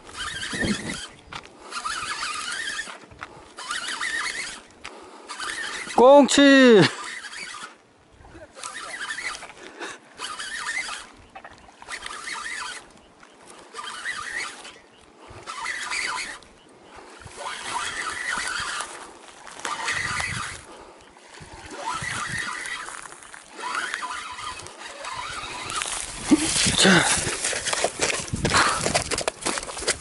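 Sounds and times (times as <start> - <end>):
fishing reel winding: 0.0 - 7.8, 8.5 - 9.6, 10.2 - 11.2, 11.8 - 13.0, 13.6 - 14.8, 15.4 - 16.5, 17.1 - 20.7, 21.4 - 28.2
fish splashing: 8.6 - 28.8.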